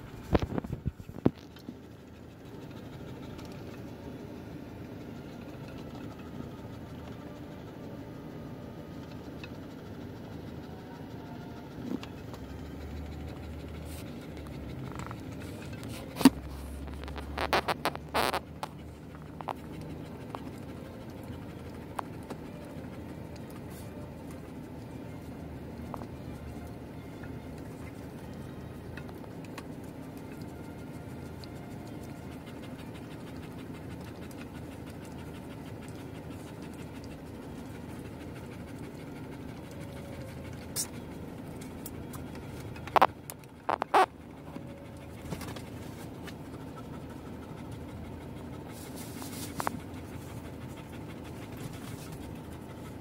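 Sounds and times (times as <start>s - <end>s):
car interior hum: 10.9s - 22.7s.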